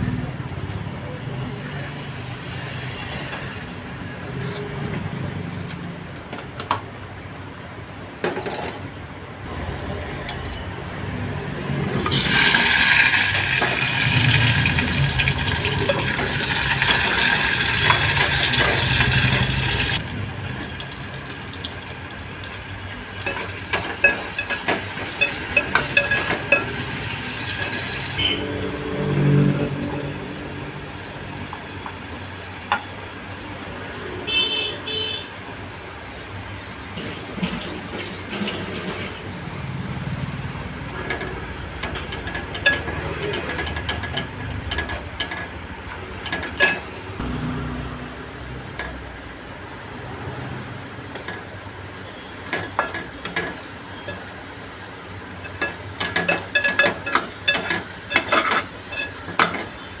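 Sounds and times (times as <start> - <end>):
onions frying in oil: 11.9 - 33.7, 51.0 - 60.0
metal spatula scraping a pot: 55.4 - 59.8.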